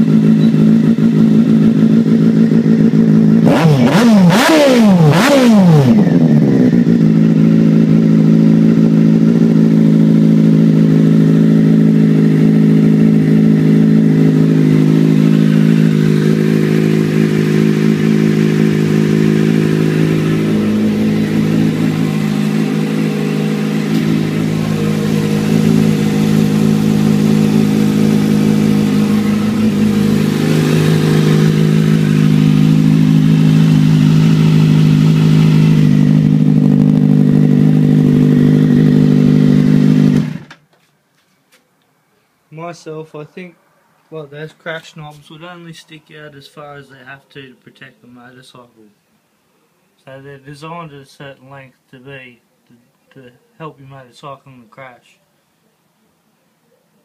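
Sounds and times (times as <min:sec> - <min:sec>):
motorcycle engine idling: 0:00.0 - 0:04.5, 0:05.1 - 0:40.5.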